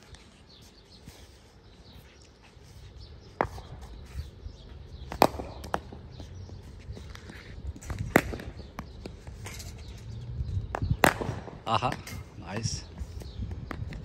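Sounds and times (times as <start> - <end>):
ball bouncing on concrete: 5.0 - 9.6, 10.6 - 12.1
cricket bat striking ball: 5.1 - 6.0, 7.9 - 9.2, 10.7 - 11.6.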